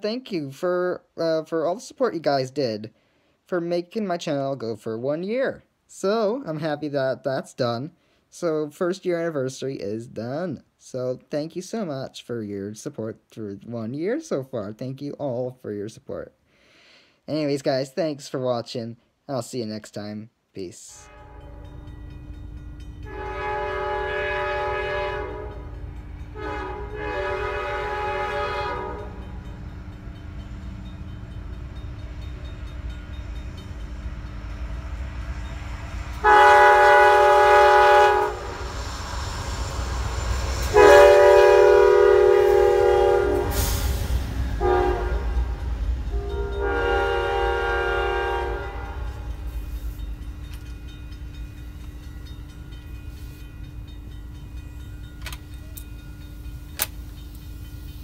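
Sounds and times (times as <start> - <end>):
train rumbling by: 20.9 - 58.0
train horn blasts: 21.0 - 21.9, 23.0 - 29.6, 36.1 - 38.7, 40.6 - 49.6.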